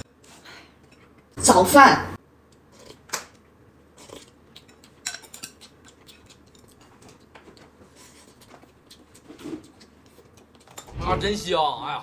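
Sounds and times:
chopsticks and spoon clinking bowls: 4.0s - 10.9s.

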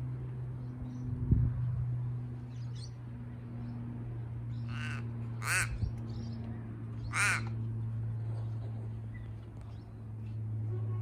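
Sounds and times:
steady low hum: 0.0s - 11.0s
crow cawing: 4.7s - 5.8s, 7.1s - 7.6s.

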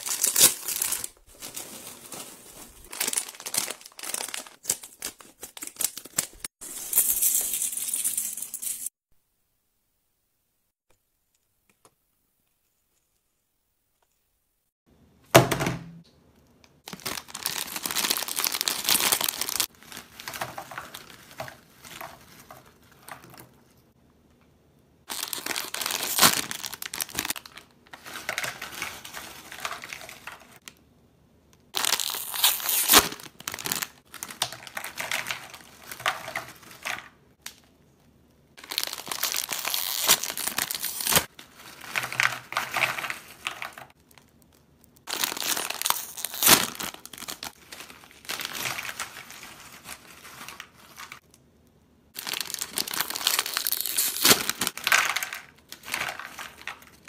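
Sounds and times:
plastic chip bags rustling: 0.0s - 8.9s, 16.8s - 23.9s, 25.1s - 30.7s, 31.7s - 37.2s, 38.6s - 51.2s, 52.2s - 57.0s.

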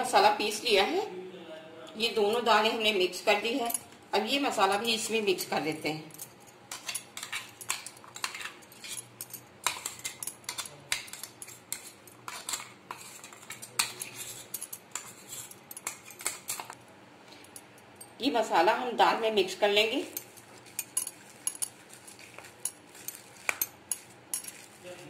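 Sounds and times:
spoon clinking and scraping bowl: 6.1s - 16.8s, 20.0s - 24.8s.

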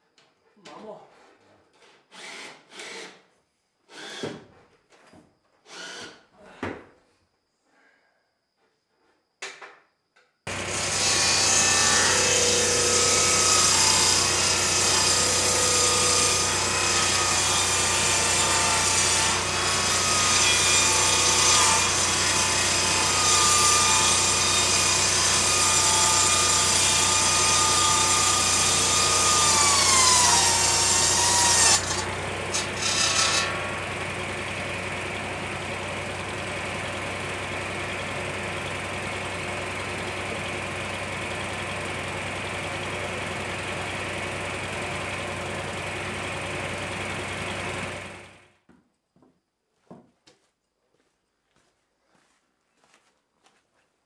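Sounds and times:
circular saw ripping boards: 10.5s - 34.1s
tractor engine low hum: 33.6s - 48.4s.

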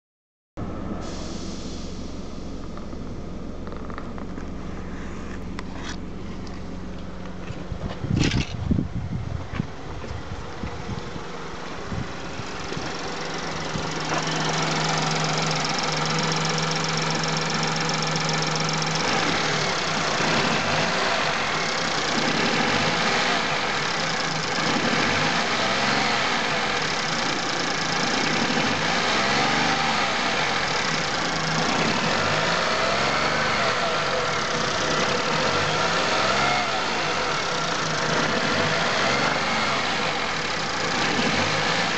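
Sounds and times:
steady hum: 0.6s - 7.0s
car engine idling: 0.6s - 41.9s.

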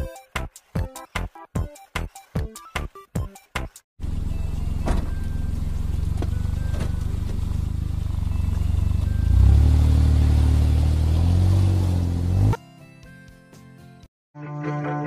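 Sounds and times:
deep engine exhaust note: 4.0s - 12.6s.

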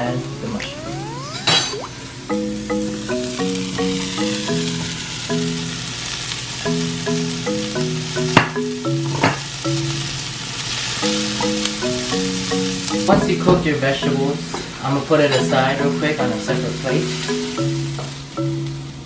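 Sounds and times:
background music melody: 0.0s - 19.0s
vegetables sizzling in a wok: 2.5s - 13.1s, 16.3s - 18.8s.

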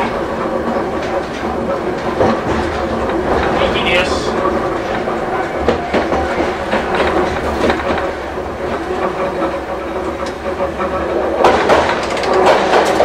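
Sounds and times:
tram motor whine and growl: 0.0s - 13.0s
wheels clicking over rails: 0.0s - 13.0s.

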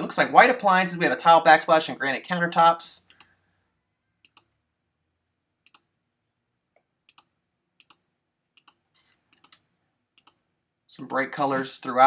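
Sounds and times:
computer mouse clicks: 3.1s - 3.4s, 4.2s - 4.5s, 5.6s - 5.9s, 6.8s - 8.0s, 8.6s - 10.4s.

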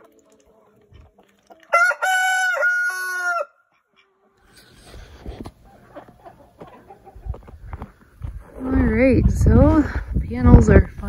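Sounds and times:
rooster crowing: 1.7s - 3.7s.

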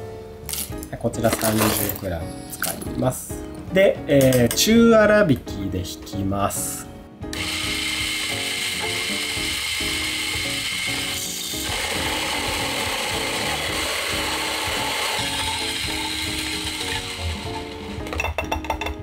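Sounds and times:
electric coffee grinder grinding: 7.3s - 18.2s.

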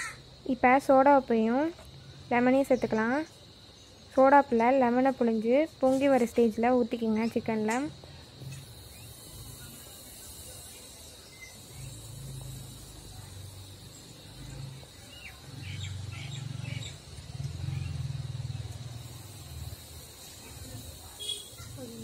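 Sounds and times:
high insect drone: 0.0s - 22.0s
bird chirps: 10.6s - 12.5s, 13.8s - 18.1s.

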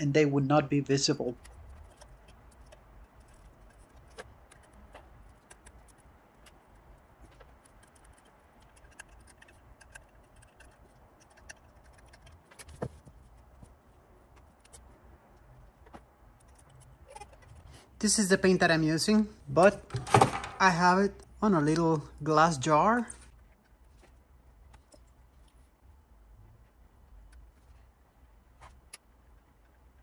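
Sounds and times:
small irregular clicks: 1.3s - 17.9s, 23.2s - 30.0s.

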